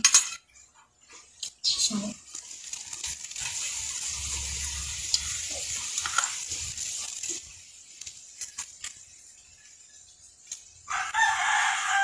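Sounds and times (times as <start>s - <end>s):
steady rushing hiss: 1.8s - 10.9s.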